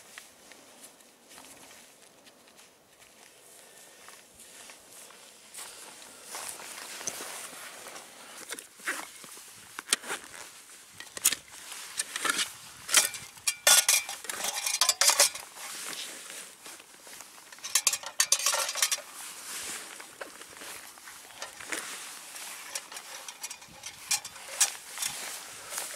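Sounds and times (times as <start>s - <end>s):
metal mess gear clinking: 12.9s - 15.5s, 17.5s - 19.1s, 21.2s - 21.8s, 22.4s - 25.9s.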